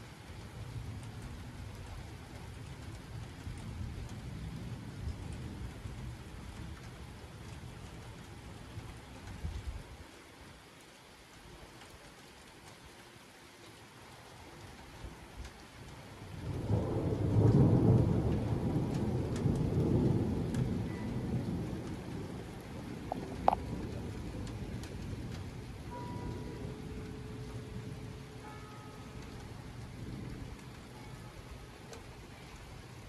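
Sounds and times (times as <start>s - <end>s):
steady rain: 0.0s - 33.0s
rolling thunder: 16.3s - 28.3s, 29.2s - 30.9s.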